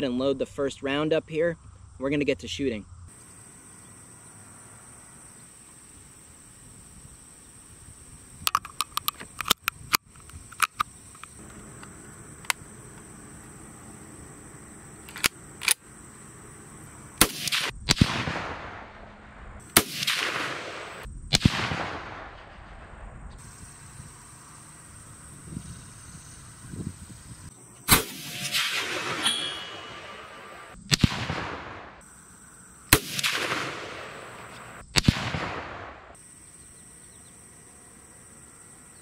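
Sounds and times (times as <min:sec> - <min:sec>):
rifle metallic clicks: 0:08.4 - 0:13.0, 0:15.0 - 0:15.9
rifle shots with echo: 0:17.2 - 0:23.0, 0:27.9 - 0:32.0, 0:32.9 - 0:36.2.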